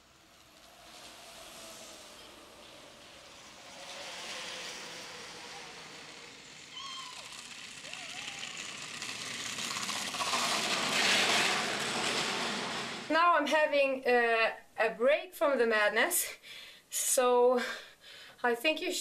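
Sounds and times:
scooter wheels rolling on asphalt: 0:00.0 - 0:13.2
short high-pitched calls: 0:06.7 - 0:07.3.

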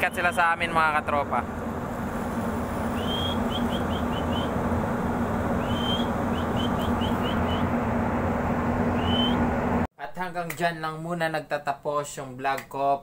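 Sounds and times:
ship machinery humming: 0:00.0 - 0:09.9
wind and sea noise: 0:00.1 - 0:09.6
rising whistle and short chirps: 0:02.9 - 0:04.6, 0:05.6 - 0:07.8, 0:08.9 - 0:09.5.

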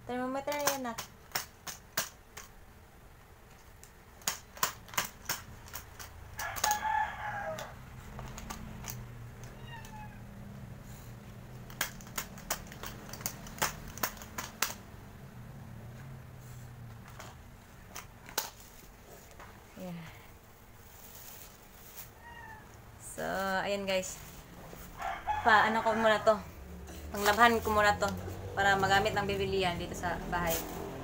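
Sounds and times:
rooster crowing: 0:06.4 - 0:07.9, 0:24.9 - 0:26.4.

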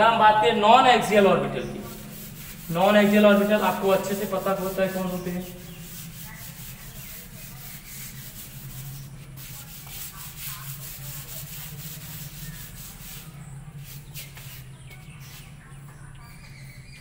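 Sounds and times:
eraser scrubbing chalkboard: 0:01.0 - 0:16.3.

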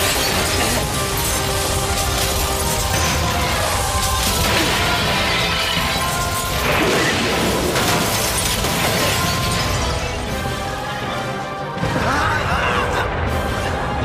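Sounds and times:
glass shattering: 0:00.0 - 0:10.8.

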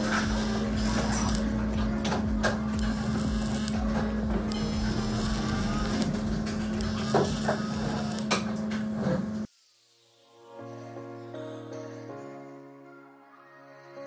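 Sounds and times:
small electric motor humming: 0:02.6 - 0:09.1.

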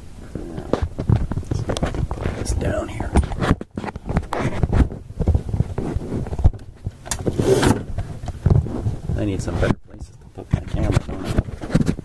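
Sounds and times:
camera handling knocks and rubbing: 0:03.1 - 0:09.0, 0:10.5 - 0:12.0.

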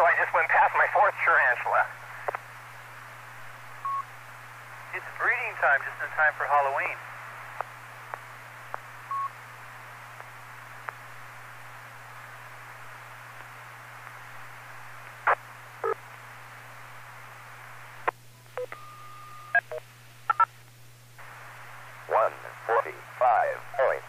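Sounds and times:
radio static hiss: 0:00.0 - 0:18.8, 0:19.5 - 0:24.0
faint clicks: 0:02.2 - 0:02.4.

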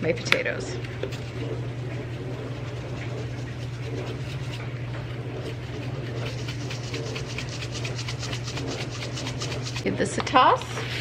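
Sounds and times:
steady low hum: 0:00.0 - 0:11.0
spice shaker shaking: 0:06.1 - 0:09.9.

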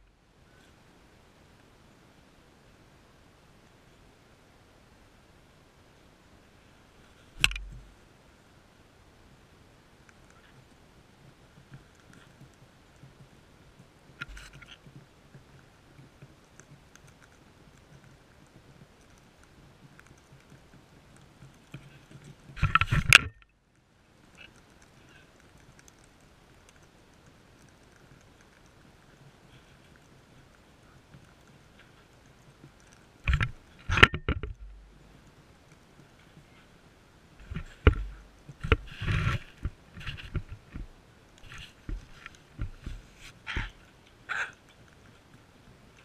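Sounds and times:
scuffling rustle: 0:37.4 - 0:45.3.

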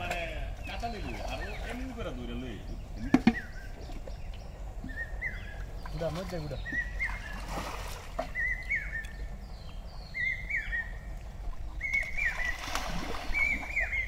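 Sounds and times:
songbird warbling: 0:00.4 - 0:14.0
water sloshing in metal basins: 0:05.6 - 0:08.8, 0:11.3 - 0:14.0.

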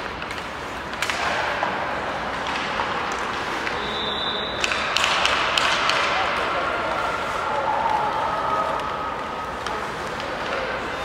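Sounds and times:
pucks knocking against sticks: 0:00.0 - 0:03.8, 0:04.6 - 0:06.5.

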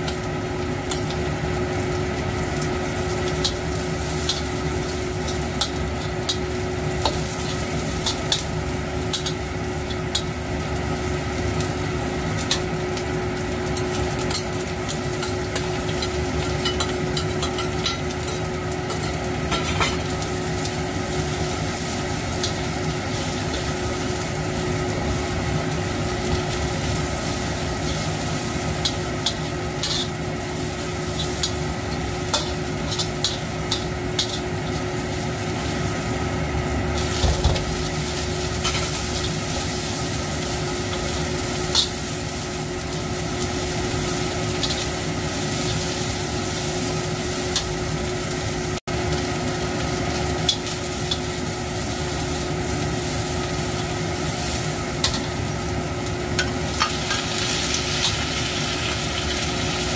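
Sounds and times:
food sizzling in a wok: 0:00.0 - 0:59.9
metal spatula scraping: 0:28.8 - 0:30.2.

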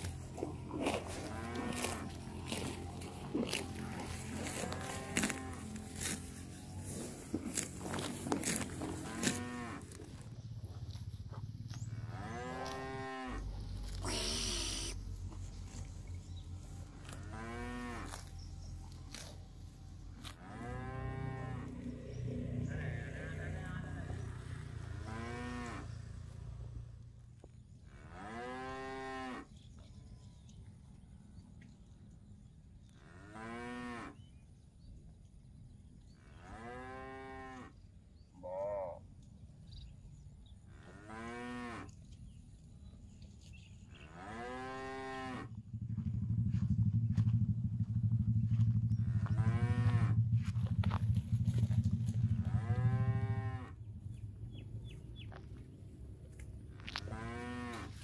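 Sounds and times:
cattle mooing: 0:00.0 - 0:06.2, 0:07.8 - 0:10.2, 0:12.0 - 0:15.0, 0:17.0 - 0:18.3, 0:20.2 - 0:22.0, 0:22.6 - 0:26.2, 0:40.7 - 0:42.0, 0:44.0 - 0:45.5, 0:48.5 - 0:50.2, 0:51.6 - 0:53.8, 0:56.8 - 0:58.0
steady low rumble: 0:45.4 - 0:58.0.

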